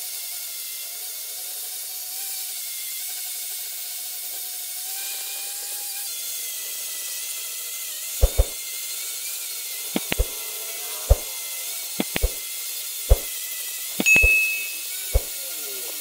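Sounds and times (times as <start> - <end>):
sharp knocks: 8.2 - 8.6, 10.0 - 10.3, 12.0 - 12.4, 14.0 - 15.3.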